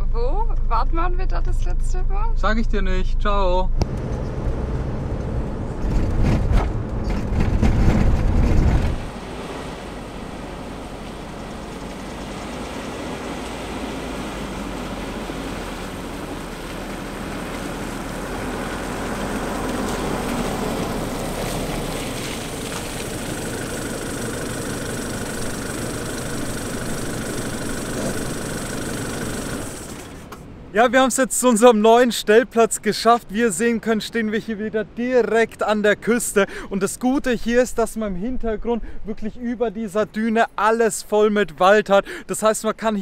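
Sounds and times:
vehicle engine: 0.0s - 30.8s
road noise: 0.0s - 43.0s.

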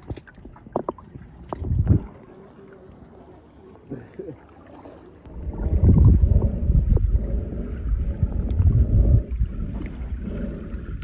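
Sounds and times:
muffled underwater rumble and sloshing: 0.0s - 11.0s.

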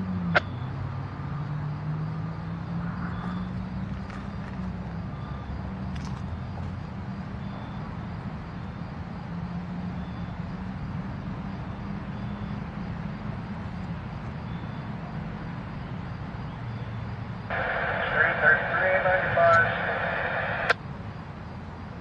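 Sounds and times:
locomotive engine droning: 9.8s - 22.0s.

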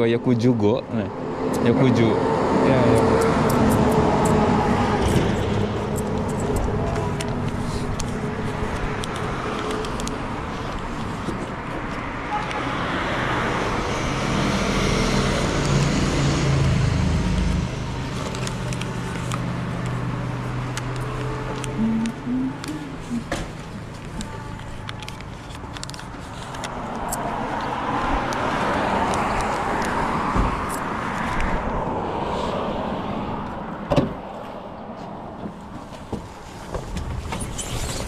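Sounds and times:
road traffic noise: 0.0s - 38.0s.

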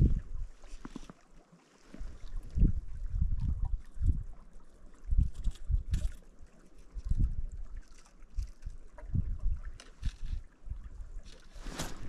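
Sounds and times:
wind buffeting microphone: 0.0s - 0.6s, 2.0s - 4.4s, 5.0s - 6.2s, 6.9s - 7.8s, 8.4s - 12.0s.

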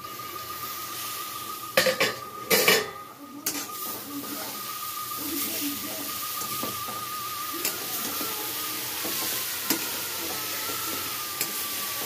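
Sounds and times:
vegetables sizzling: 0.0s - 12.0s
metal clanks on pan: 1.8s - 3.7s.

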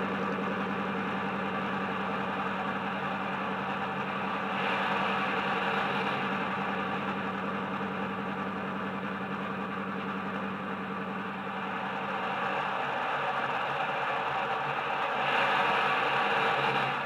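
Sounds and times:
diesel engine idle drone: 0.0s - 17.0s.

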